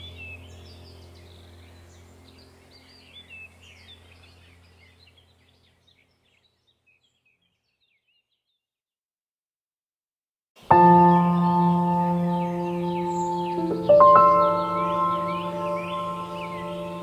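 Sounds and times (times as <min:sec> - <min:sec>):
deep droning background music: 0:00.0 - 0:05.4, 0:10.7 - 0:17.0
songbirds chirping and singing: 0:00.0 - 0:08.6, 0:10.6 - 0:17.0.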